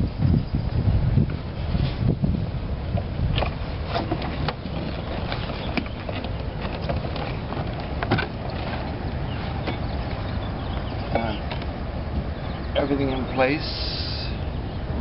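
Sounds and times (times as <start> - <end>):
wind noise on microphone: 0.0 - 15.0
knocks and clunks on boat: 2.9 - 12.7.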